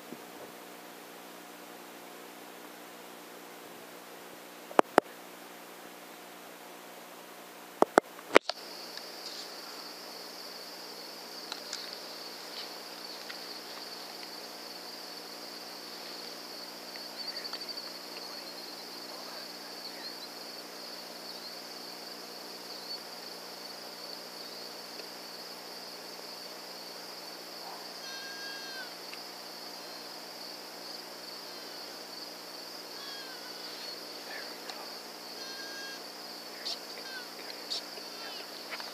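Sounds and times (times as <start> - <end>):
night insects chirring: 7.9 - 38.9.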